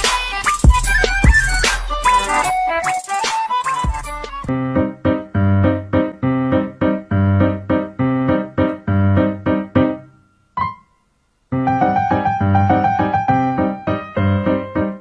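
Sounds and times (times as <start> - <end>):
piano chords: 4.4 - 15.0.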